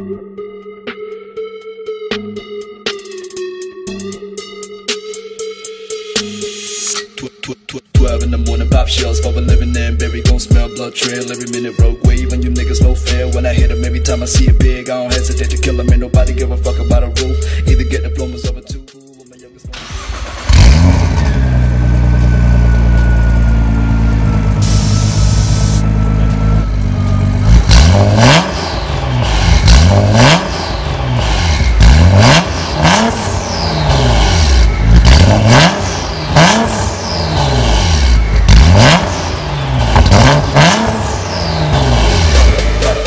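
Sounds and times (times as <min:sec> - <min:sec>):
car engine idling and revving: 0:19.7 - 0:43.0.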